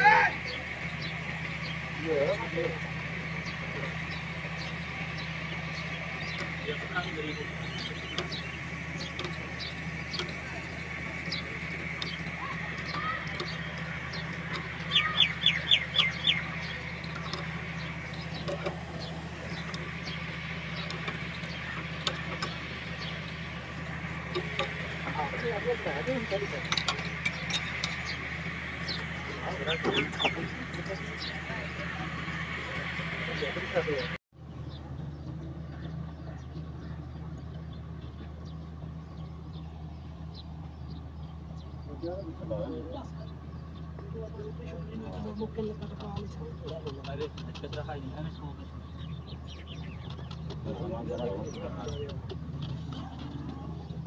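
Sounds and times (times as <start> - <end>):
bird giving high calls: 0.0 - 34.1
low mechanical hum: 0.0 - 54.0.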